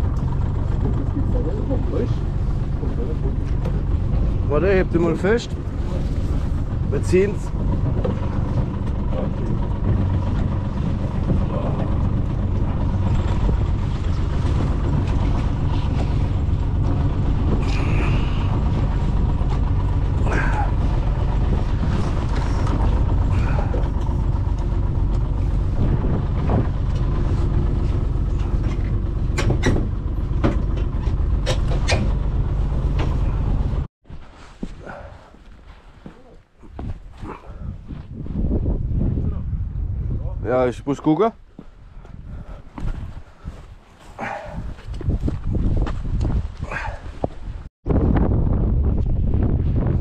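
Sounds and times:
outboard motor running: 0:00.0 - 0:33.9, 0:44.2 - 0:47.7
boat knocking against pier: 0:06.5 - 0:33.8.

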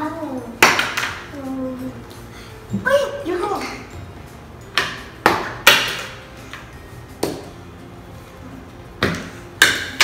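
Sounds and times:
darts hitting a dartboard: 0:00.6 - 0:01.2, 0:04.7 - 0:06.6, 0:07.2 - 0:07.6, 0:09.0 - 0:10.0.

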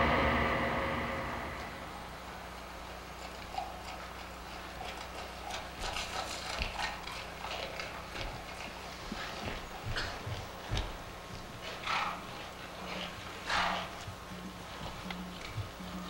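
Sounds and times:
low steady hum: 0:00.0 - 0:16.0
feet tapping on stage floor: 0:09.4 - 0:11.6.

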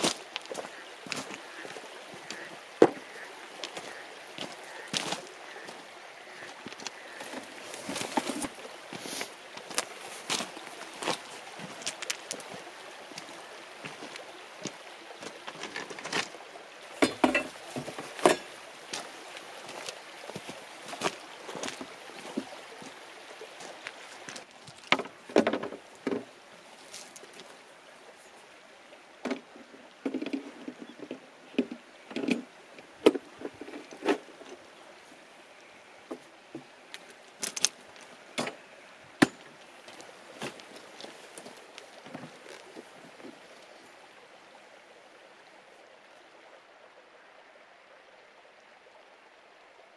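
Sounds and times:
footsteps on pebbles: 0:00.0 - 0:05.8, 0:06.4 - 0:12.6, 0:13.2 - 0:16.4, 0:23.6 - 0:25.2, 0:39.2 - 0:43.4
steady background hiss: 0:00.0 - 0:49.9.

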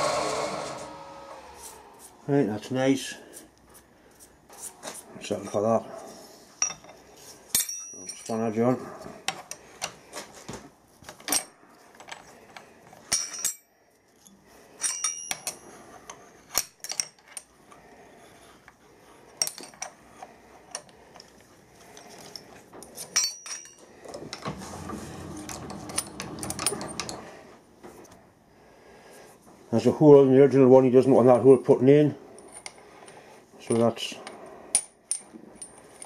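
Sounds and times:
metallic clinks and taps: 0:06.6 - 0:08.5, 0:11.1 - 0:15.6, 0:20.7 - 0:24.4.

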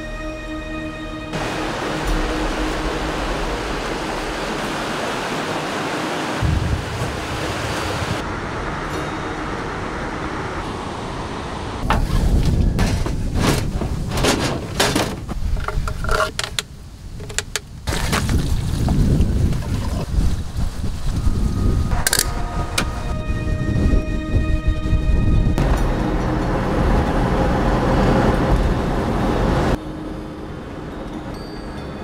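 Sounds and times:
waterfall roaring: 0:01.4 - 0:11.9
rumbling noise bursts: 0:01.4 - 0:29.8.

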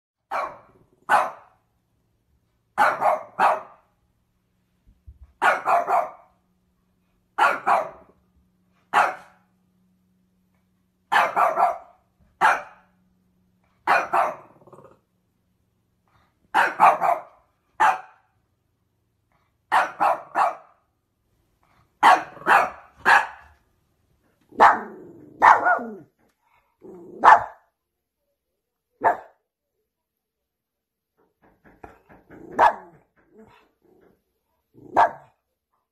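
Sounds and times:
puppy barking: 0:00.3 - 0:01.6, 0:02.8 - 0:03.9, 0:05.4 - 0:06.3, 0:07.4 - 0:08.2, 0:08.9 - 0:09.4, 0:11.1 - 0:12.9, 0:13.8 - 0:14.6, 0:16.5 - 0:18.3, 0:19.7 - 0:20.8, 0:22.0 - 0:23.6, 0:24.5 - 0:26.1, 0:27.1 - 0:27.7, 0:29.0 - 0:29.4, 0:32.4 - 0:33.0, 0:34.8 - 0:35.4.

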